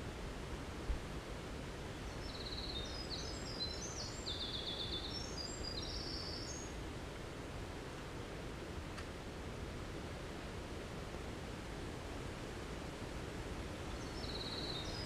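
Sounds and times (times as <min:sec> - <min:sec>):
wren singing trills: 0:02.2 - 0:06.7, 0:13.9 - 0:15.0.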